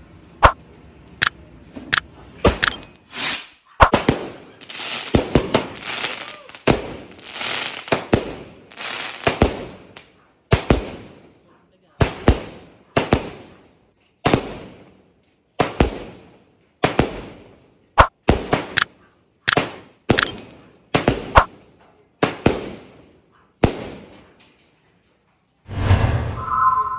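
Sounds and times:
fireworks bangs: 3.2 - 11.3
high whistle: 26.1 - 26.9.

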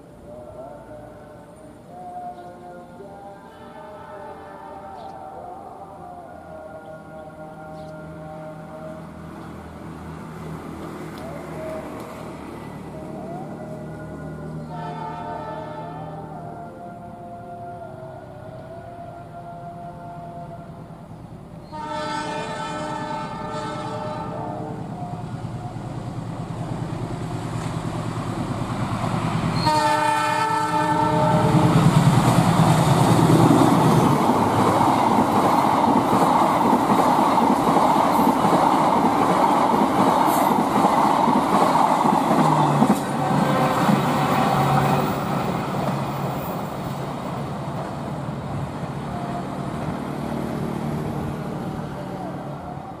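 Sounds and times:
train passing rumble: 0.0 - 53.0
diesel locomotive horn: 1.9 - 5.2, 11.2 - 21.0, 21.6 - 27.5, 29.5 - 36.3, 42.3 - 46.6, 48.8 - 53.0
wheels clacking on rails: 26.1 - 51.7.

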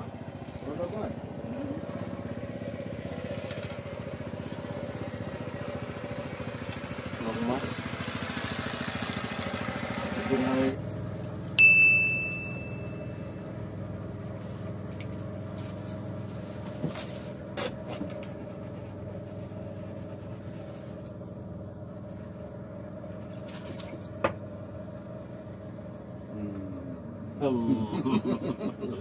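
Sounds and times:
boat engine running: 0.0 - 28.2
bell-like ring: 11.6 - 13.2.

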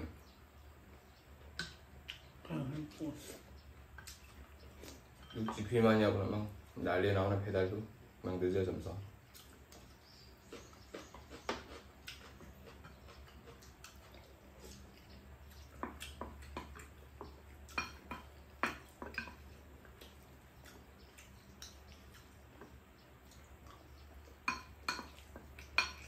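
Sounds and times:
faint low hum: 0.0 - 26.0
spoons tapping on ceramic bowls: 24.4 - 26.0.

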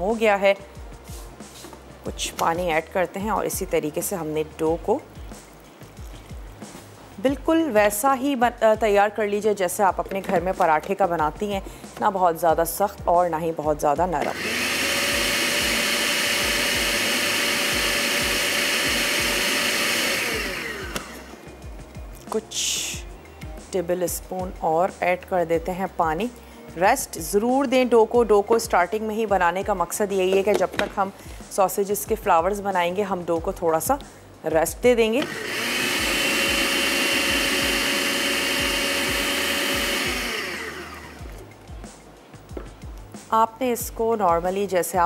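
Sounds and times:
food chopper motor whine: 14.2 - 21.5, 35.2 - 41.4.

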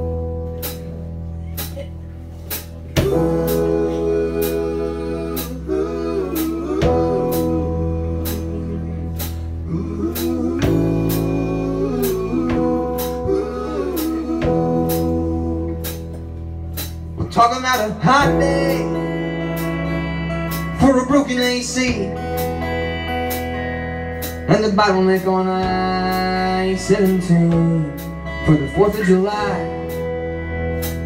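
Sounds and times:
acoustic guitar: 0.0 - 31.0
bass guitar: 0.0 - 31.0
electric guitar chords: 0.0 - 31.0
keyboard chords: 0.0 - 31.0
drum kit beat: 0.5 - 17.2.

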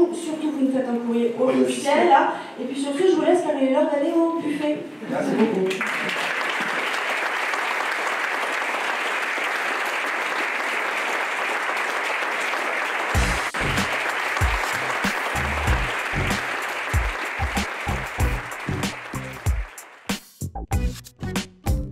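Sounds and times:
audience applauding: 5.6 - 20.3
music with deep bass notes: 13.2 - 13.9, 14.6 - 16.4, 17.4 - 19.4, 20.4 - 21.9.

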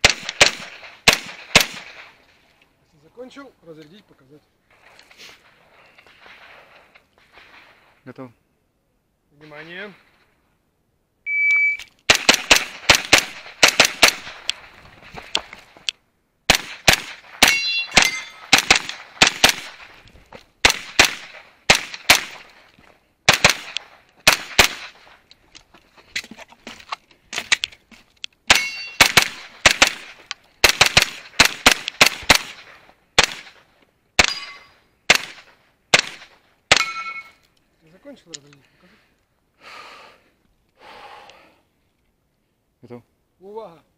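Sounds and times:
carbine gunshots: 0.0 - 2.2, 5.4 - 8.0, 12.1 - 15.8, 16.5 - 20.0, 20.6 - 22.7, 23.3 - 25.2, 28.5 - 37.4
shot timer beep: 11.3 - 11.9
steel target ringing: 17.4 - 18.5, 28.5 - 29.0, 34.2 - 34.8, 36.8 - 37.4.

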